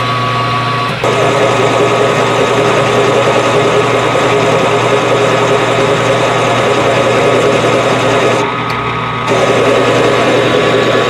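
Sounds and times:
lathe humming: 0.9s - 11.0s.

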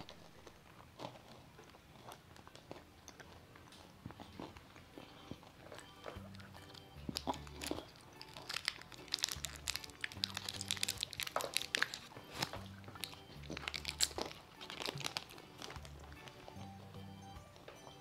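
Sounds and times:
candy wrapper crinkling: 0.0s - 16.8s
background music with bass: 6.1s - 8.2s, 9.2s - 17.6s.

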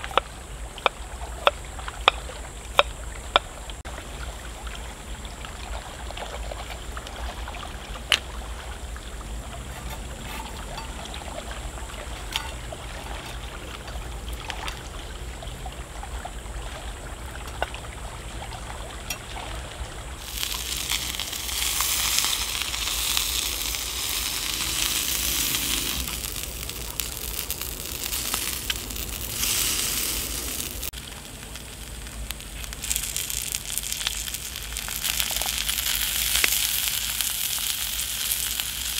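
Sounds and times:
food sizzling in a pan: 20.2s - 38.9s
wood fire crackling and popping: 20.2s - 38.9s.

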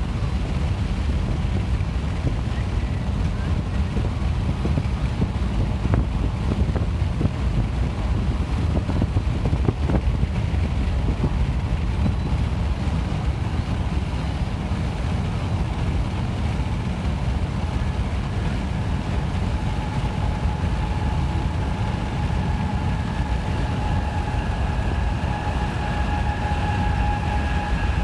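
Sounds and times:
car road and wind rumble: 0.0s - 28.0s
faint steady whine: 0.0s - 28.0s.

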